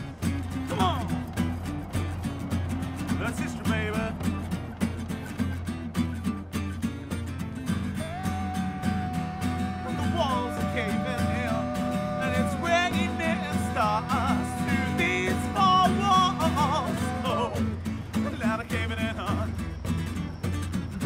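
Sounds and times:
acoustic bass guitar: 0.0s - 21.0s
acoustic guitars strummed: 0.0s - 21.0s
voices singing in harmony: 7.9s - 19.2s.

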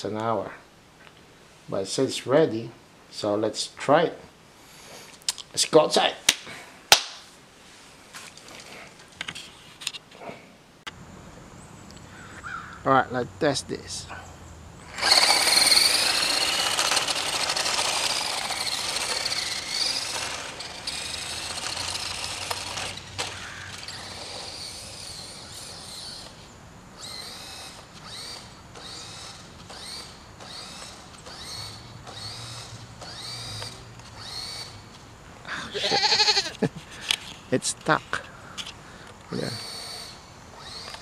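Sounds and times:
short motor bursts: 14.8s - 26.4s, 27.0s - 34.8s, 39.4s - 41.0s
toy car electric motor whining: 14.8s - 26.4s, 27.0s - 34.8s, 35.8s - 36.6s, 39.4s - 41.0s.

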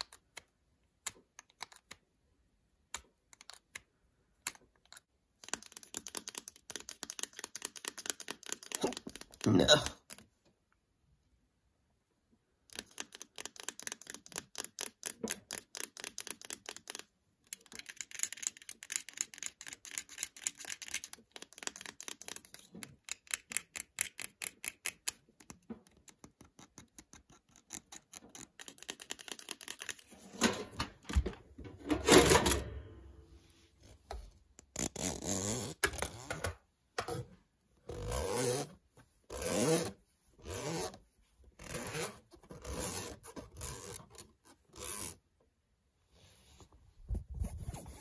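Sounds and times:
plastic adapter rubbed: 47.1s - 48.0s.

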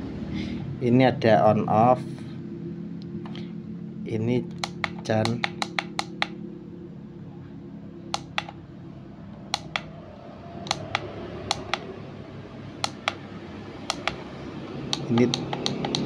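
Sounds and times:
plastic buttons clicking: 4.5s - 6.4s, 8.2s - 8.6s, 9.6s - 9.9s, 10.7s - 11.8s, 12.8s - 13.2s, 13.9s - 14.2s, 14.9s - 16.0s.

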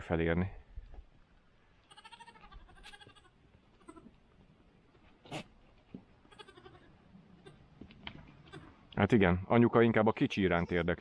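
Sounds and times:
goats bleating faintly: 1.8s - 4.2s, 6.2s - 7.7s, 8.3s - 8.9s.

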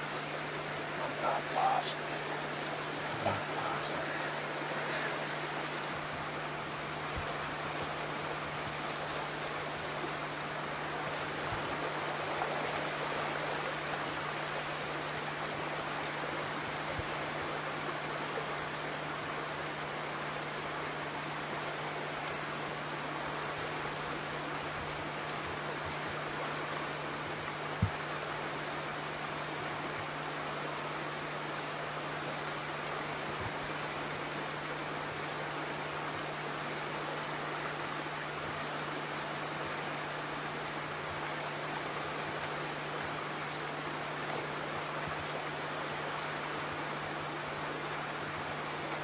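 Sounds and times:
creek rushing: 0.0s - 49.0s.

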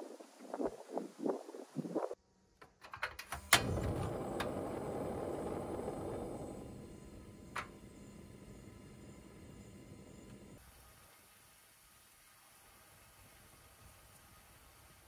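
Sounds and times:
igniter click: 3.2s - 10.6s
gas flame hissing: 3.4s - 10.6s.

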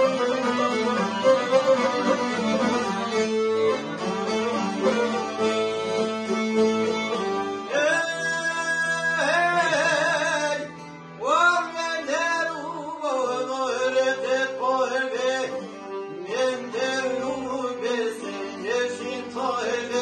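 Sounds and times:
plucked lutes: 0.0s - 11.3s
accordion: 0.0s - 20.0s
violin: 0.0s - 20.0s
man singing: 7.7s - 20.0s.

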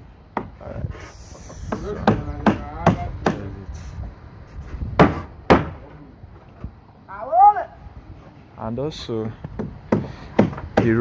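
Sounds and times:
hammer nailing timber boards: 1.4s - 3.5s, 5.0s - 5.8s, 9.2s - 11.0s.

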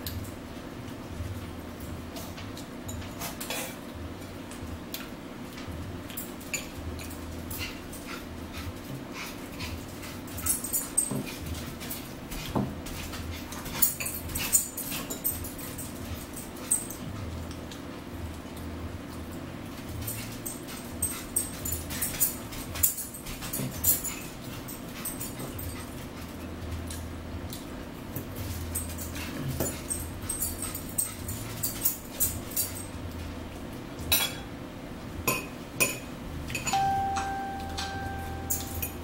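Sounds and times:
steady low hum: 0.0s - 39.0s
forks clinking and scraping on plates: 2.9s - 3.8s, 6.1s - 8.2s, 9.2s - 17.0s, 34.1s - 34.5s, 35.3s - 39.0s.

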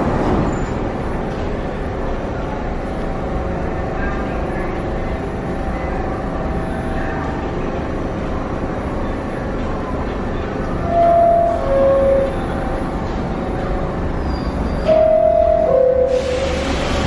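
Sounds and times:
subway train humming: 0.0s - 17.0s
two-note door chime: 14.8s - 16.2s.

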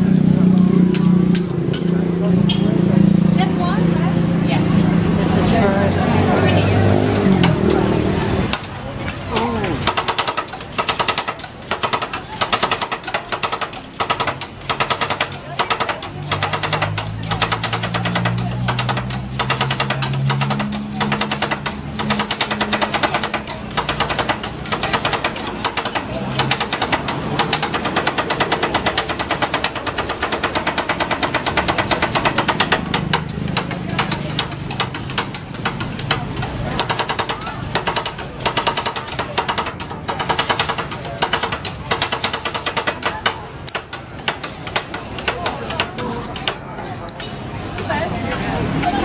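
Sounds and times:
metal spatulas tapping on steel plate: 9.8s - 46.6s.

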